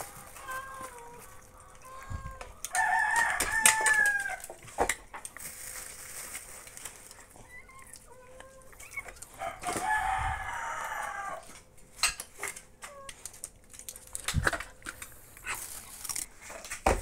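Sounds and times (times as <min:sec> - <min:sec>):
rooster crowing: 0:02.4 - 0:04.5, 0:09.4 - 0:11.6.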